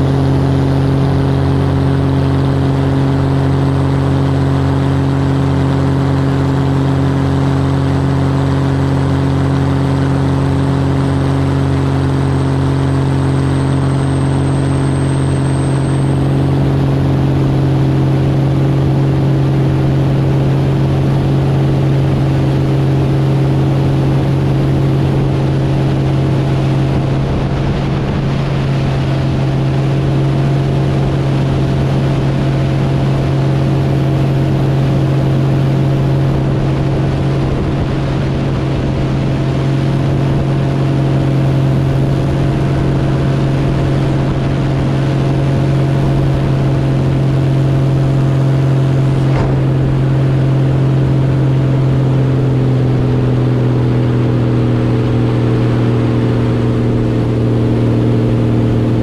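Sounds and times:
airplane engine and propeller drone: 0.0s - 59.0s
wind rush over camera: 46.0s - 52.6s.

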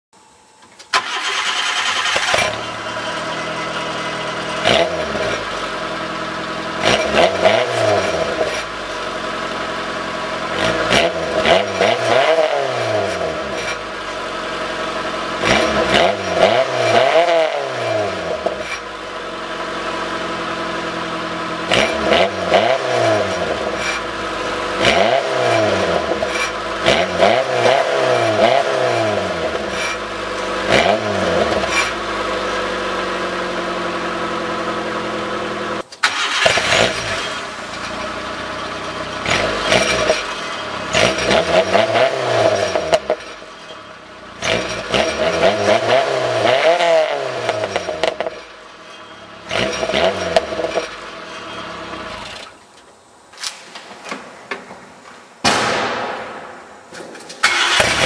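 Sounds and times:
car engine starting: 0.8s - 53.3s, 55.5s - 58.0s
car engine idling: 0.9s - 11.8s, 13.3s - 16.1s, 18.3s - 22.1s, 31.5s - 42.0s, 42.6s - 45.4s
engine revving: 1.0s - 19.2s, 19.8s - 52.5s, 57.4s - 58.0s.

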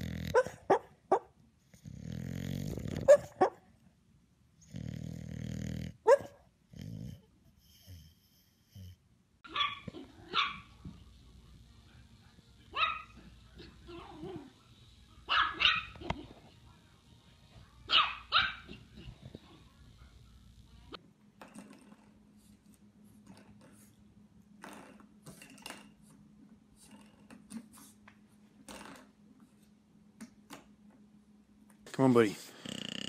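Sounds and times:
dog snoring: 0.0s - 0.6s, 1.6s - 3.3s, 4.6s - 9.0s, 32.3s - 33.0s
dog snorting: 0.0s - 0.8s, 1.7s - 3.4s, 4.6s - 9.0s, 32.3s - 33.0s
dog barking: 0.3s - 1.3s, 3.1s - 3.6s, 6.0s - 6.4s, 9.4s - 10.7s, 12.7s - 14.5s, 15.3s - 16.2s, 17.9s - 19.1s.

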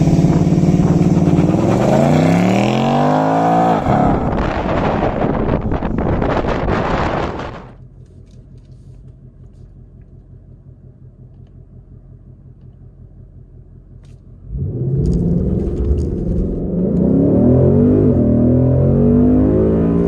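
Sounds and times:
car engine idling and revving: 0.0s - 20.0s.

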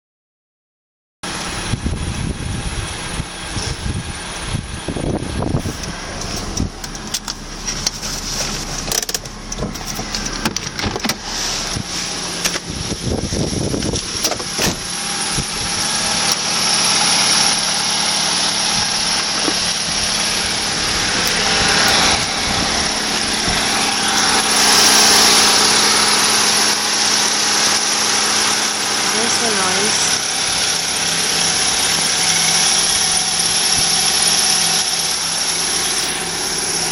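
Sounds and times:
engine running: 1.2s - 36.9s.

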